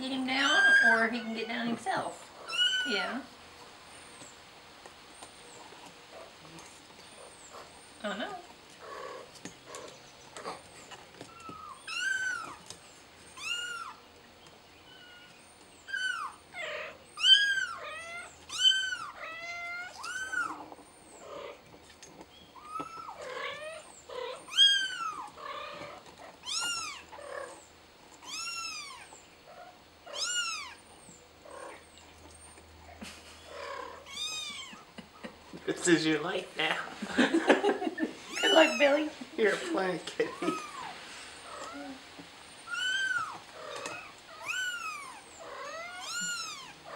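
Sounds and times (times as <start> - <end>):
kitten meowing: 2.5 - 3.1, 15.9 - 20.6, 26.4 - 27.0, 28.2 - 29.1, 30.1 - 30.8, 33.6 - 34.8, 38.3 - 38.9, 42.7 - 46.8.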